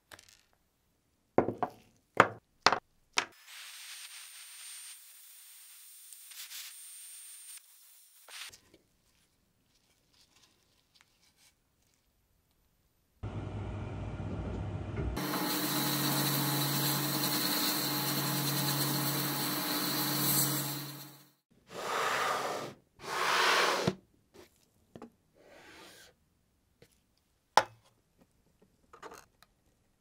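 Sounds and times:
rustling noises: 8.5 - 12.7
sandblast gun hissing: 15.2 - 21.3.

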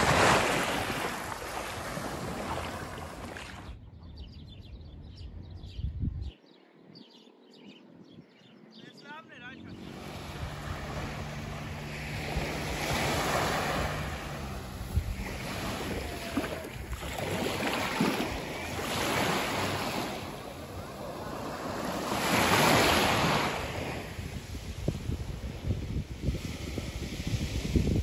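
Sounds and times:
waves washing onto pebbly beach: 12.5 - 24.0.

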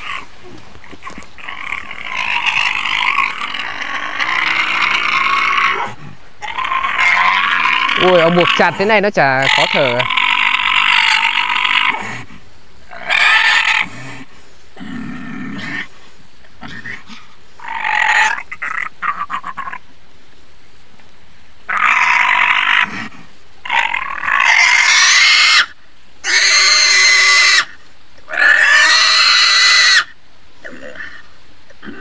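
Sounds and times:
pig grunting: 0.0 - 12.3, 16.6 - 19.8
pig squealing: 1.0 - 12.2, 12.9 - 14.0, 17.6 - 19.8, 21.7 - 32.0.

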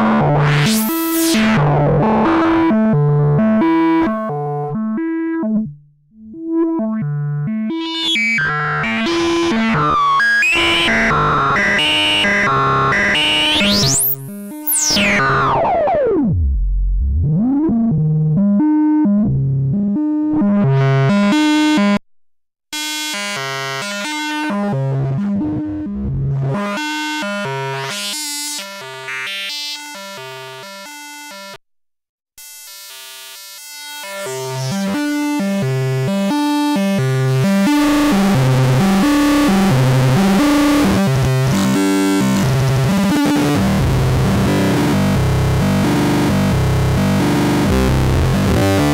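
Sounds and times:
synth notes sequence: 0.0 - 16.3, 23.9 - 28.1, 37.2 - 48.9.

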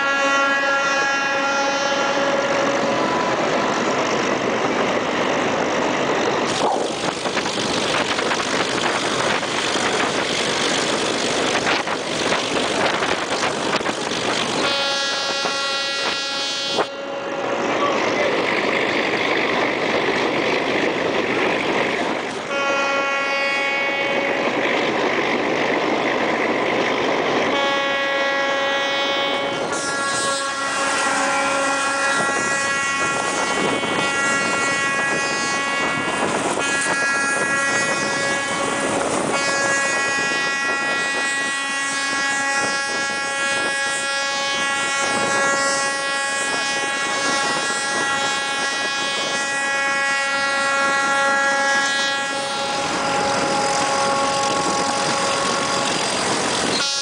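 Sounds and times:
train horn blasts: 0.0 - 5.1, 12.8 - 18.3, 22.3 - 24.9, 27.5 - 57.0
train rolling noise: 0.0 - 57.0.

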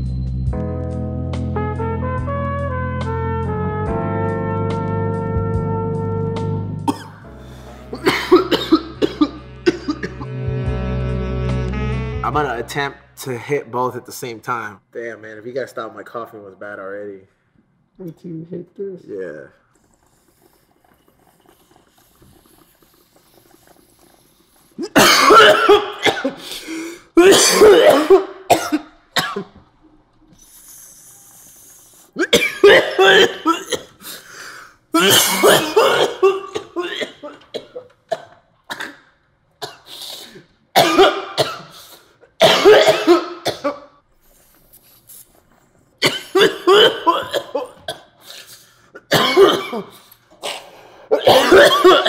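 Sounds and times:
man coughing hard: 6.9 - 10.3, 24.8 - 26.4, 27.2 - 29.5, 32.2 - 34.0, 35.0 - 39.0, 39.6 - 41.8, 42.4 - 44.0, 46.0 - 52.0.

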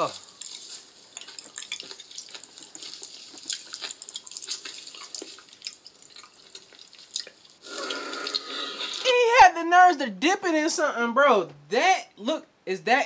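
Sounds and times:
wet squelches of raw liver: 0.0 - 9.1.

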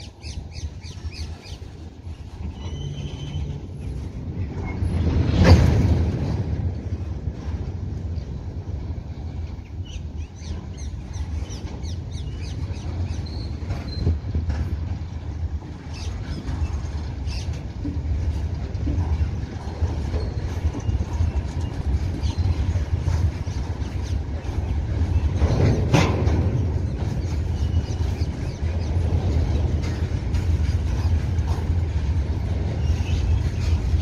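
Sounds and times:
train wheels rumbling on rail: 0.0 - 34.0
metallic clicks and clacks: 16.2 - 34.0.

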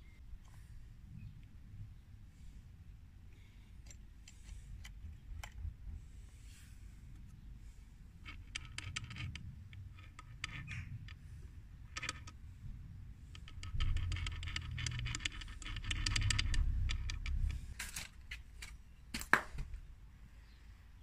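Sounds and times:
small metal parts clicking: 8.2 - 12.4, 13.2 - 18.8.

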